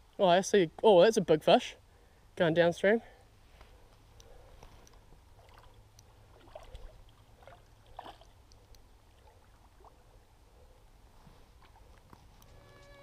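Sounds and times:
stream running water: 4.3s - 12.5s
soft short splashes: 5.4s - 8.4s.

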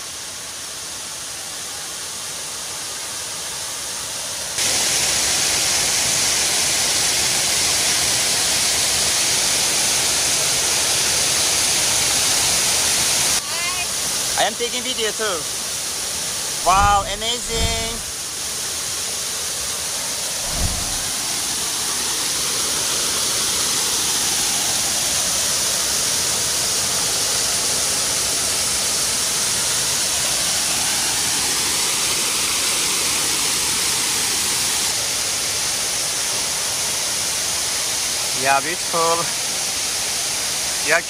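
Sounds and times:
waterfall rushing: 0.1s - 41.0s
low thump: 16.7s - 18.1s, 20.4s - 21.1s.

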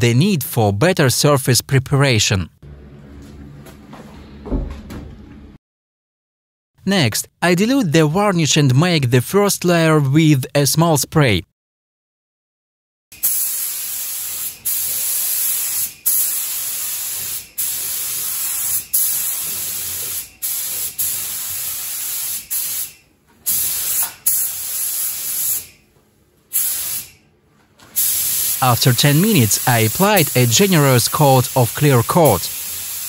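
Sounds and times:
spray gun hissing: 13.2s - 22.9s, 23.5s - 25.7s, 26.5s - 27.1s, 28.0s - 33.0s.

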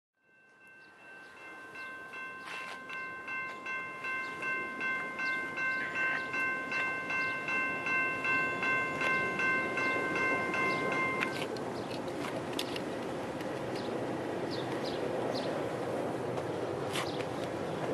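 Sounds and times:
crossing bell ringing: 0.2s - 11.5s
freight train rumble: 0.4s - 17.9s.

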